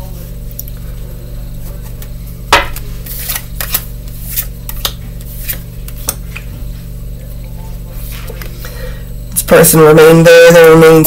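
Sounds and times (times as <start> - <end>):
low hum: 0.0 - 11.0
card snapping: 2.7 - 6.2
cards clicking and flicking: 2.7 - 6.2.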